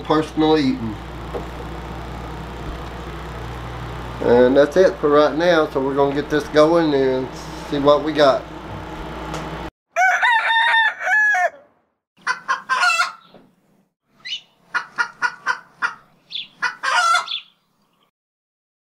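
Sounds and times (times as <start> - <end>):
rooster crowing: 9.9 - 11.7, 12.3 - 13.2, 16.8 - 17.4.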